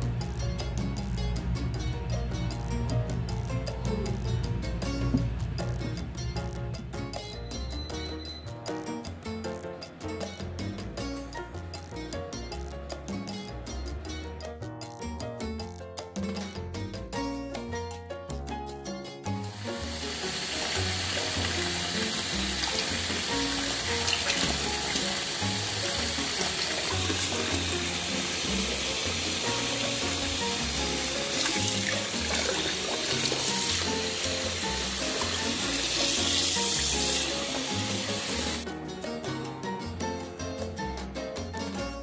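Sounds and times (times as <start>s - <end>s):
background music: 0.0s - 42.0s
tap running into sink: 19.6s - 38.6s.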